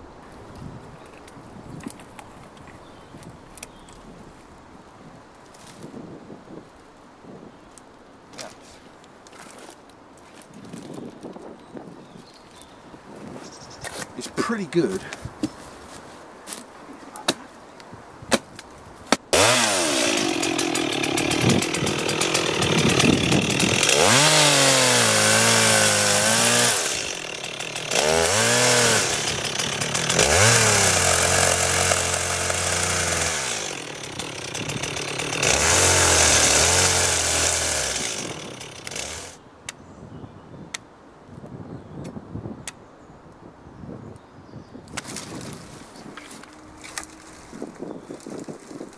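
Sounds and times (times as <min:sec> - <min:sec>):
chainsaw revving and cutting: 0:19.2 - 0:39.4.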